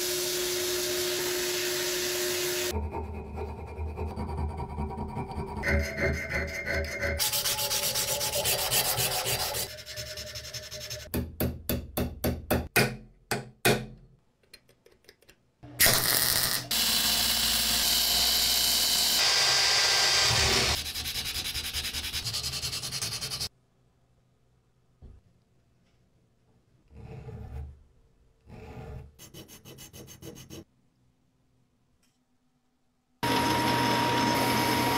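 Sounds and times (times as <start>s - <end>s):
file rasping on steel: 2.7s - 11.1s, 28.5s - 30.7s
sandpaper rubbing on metal: 7.0s - 11.1s, 20.8s - 23.5s, 29.2s - 30.6s.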